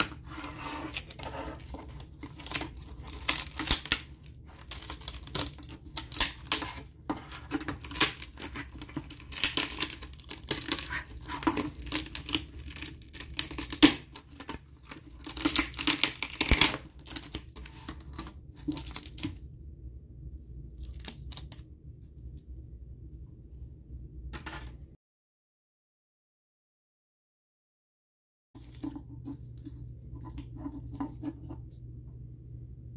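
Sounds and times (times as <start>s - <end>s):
adhesive tearing: 7.8s - 19.3s.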